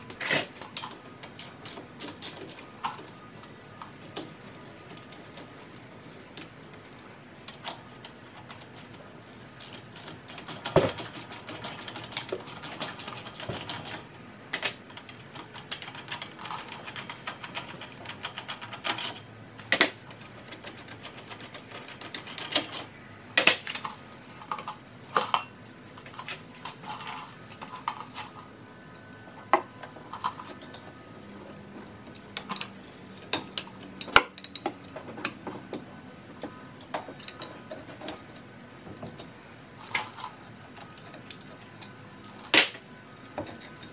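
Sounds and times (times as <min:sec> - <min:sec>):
hand tools clicking on metal: 0:00.2 - 0:03.0, 0:09.6 - 0:23.9.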